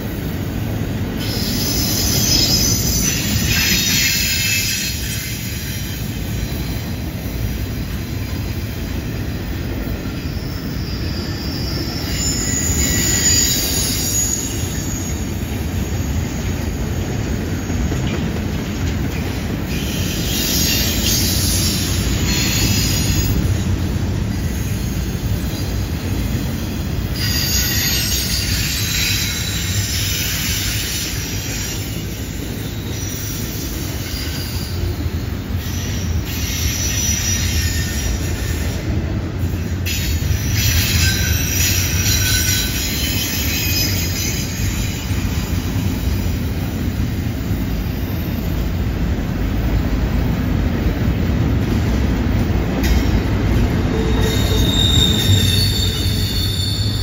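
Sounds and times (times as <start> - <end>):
train wheels rumbling on rail: 0.0 - 57.0
wheel flange squeal: 1.2 - 6.0, 10.1 - 18.0, 27.2 - 35.0, 35.6 - 38.8, 39.9 - 46.2, 53.9 - 57.0.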